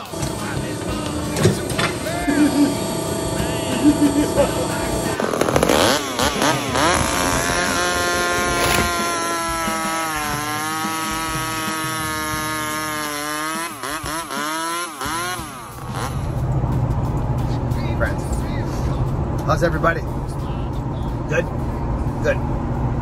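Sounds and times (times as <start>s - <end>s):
chainsaw cutting log: 0.0s - 16.3s.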